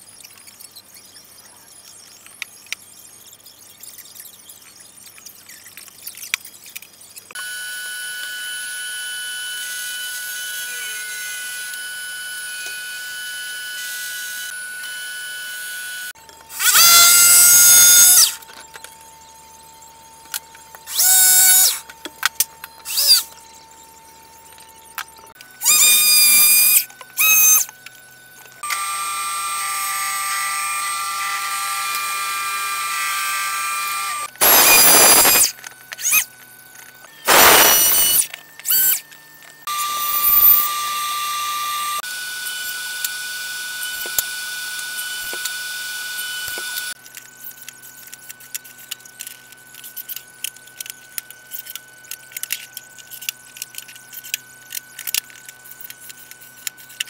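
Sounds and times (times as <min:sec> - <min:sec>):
saw cutting plywood with squeal: 0:07.3 - 0:18.4, 0:20.9 - 0:21.9, 0:22.8 - 0:23.4, 0:25.6 - 0:27.7, 0:28.6 - 0:36.3, 0:37.1 - 0:47.0
power saw motor whine: 0:07.3 - 0:50.9.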